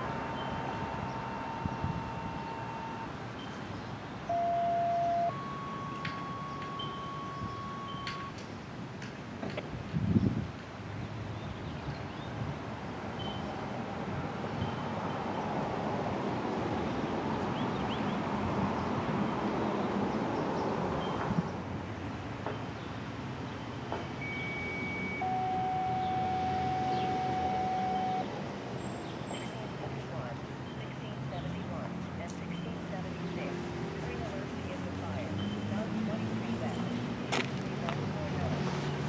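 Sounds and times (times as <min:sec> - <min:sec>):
steady electronic tone: 0:00.0 - 0:03.3, 0:04.3 - 0:08.3, 0:24.2 - 0:28.3
faint higher tone: 0:00.0 - 0:03.6, 0:04.3 - 0:08.4, 0:24.2 - 0:28.3
wind buffeting microphone: 0:00.0 - 0:04.2, 0:09.5 - 0:21.6
outdoor background noise: 0:00.0 - 0:39.0.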